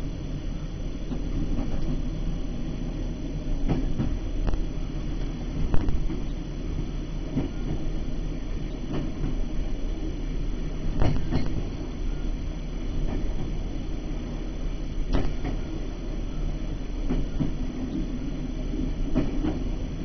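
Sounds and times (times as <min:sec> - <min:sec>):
train rumbling: 0:00.0 - 0:20.0
wheels knocking on track: 0:10.8 - 0:12.2, 0:15.1 - 0:16.4.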